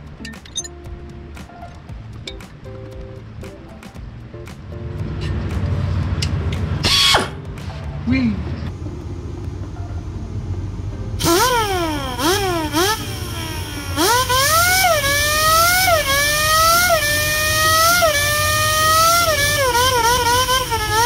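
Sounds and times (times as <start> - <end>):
racing car engine accelerating: 4.9 - 21.0.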